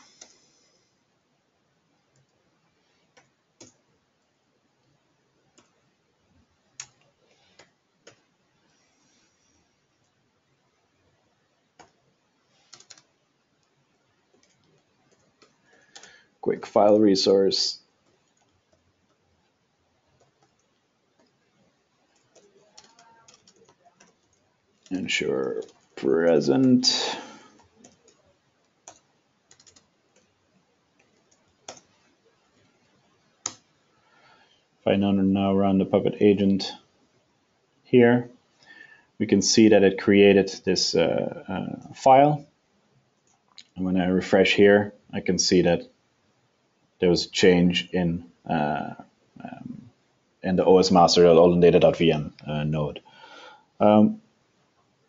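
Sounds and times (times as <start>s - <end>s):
computer keyboard keystrokes: 12.6s - 13.1s, 14.3s - 16.2s, 22.1s - 25.9s, 27.5s - 30.3s, 31.0s - 32.0s, 33.4s - 33.6s
keyboard keystrokes: 22.2s - 24.4s, 28.8s - 30.3s.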